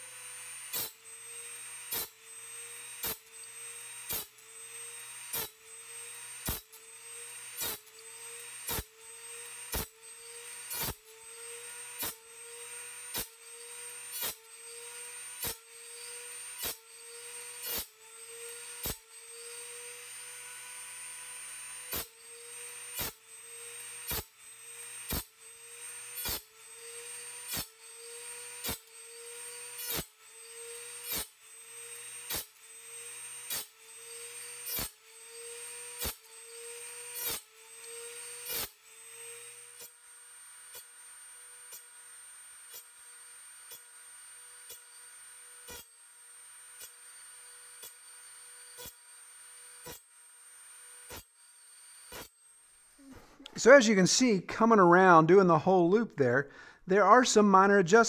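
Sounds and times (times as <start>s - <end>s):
rotary tool grinding blade: 0.0s - 53.5s.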